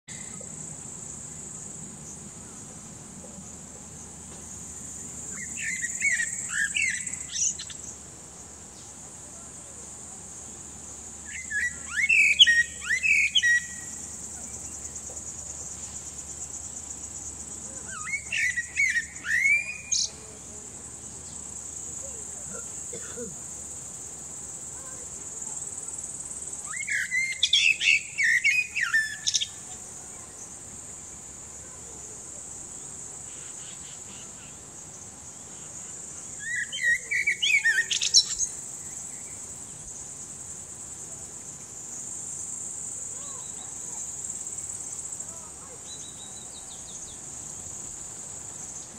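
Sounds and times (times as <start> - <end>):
blackbird singing: 5.3 - 8.0, 11.2 - 14.9, 17.8 - 20.2, 26.6 - 29.7, 36.4 - 39.4, 45.8 - 47.2.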